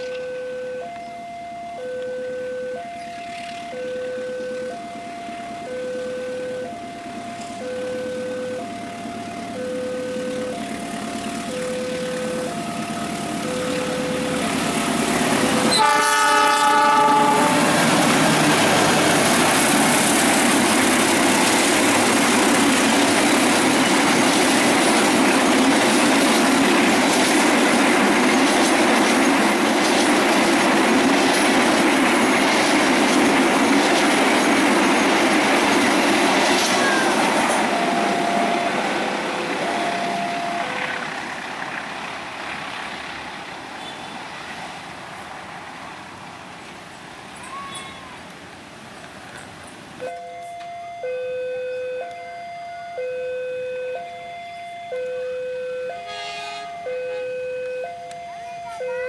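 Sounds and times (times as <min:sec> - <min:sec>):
level crossing warning tones: 0:00.0 - 0:41.8, 0:50.0 - 0:59.0
train rumbling past: 0:00.0 - 0:59.0
wheels clacking over rail joints: 0:06.8 - 0:44.7
locomotive horn blast: 0:15.4 - 0:18.7, 0:55.8 - 0:57.9.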